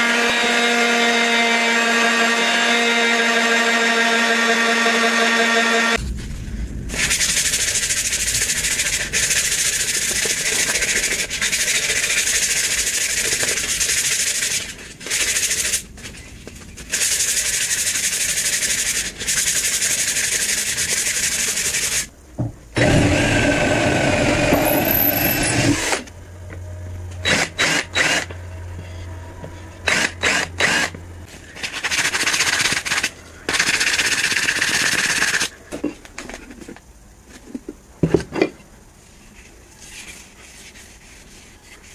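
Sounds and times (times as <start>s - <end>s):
low hum: 5.9s - 11.4s, 22.8s - 31.6s
sandpaper rasping on wood: 8.5s - 15.8s, 16.9s - 22.1s.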